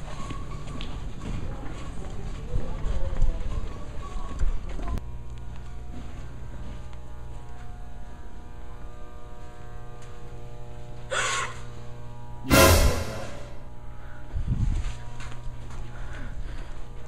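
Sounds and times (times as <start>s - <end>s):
steady low hum: 5.0s - 17.0s.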